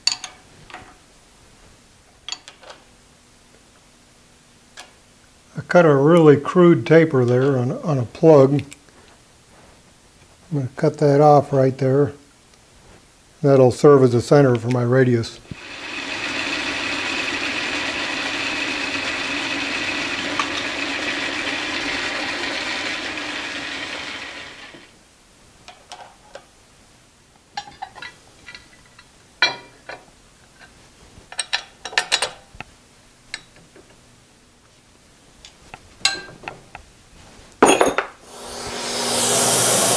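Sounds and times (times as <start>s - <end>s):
metallic clinks and taps: 0.0s - 0.4s
metal lathe whirring: 15.5s - 24.9s, 38.2s - 39.9s.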